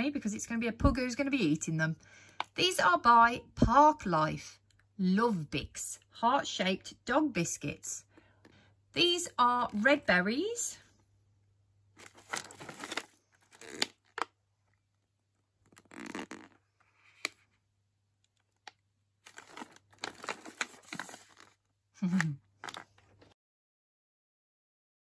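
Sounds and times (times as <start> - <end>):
plastic pouch crinkling: 12.0 - 14.4, 15.6 - 17.4, 18.4 - 21.7, 22.6 - 23.2.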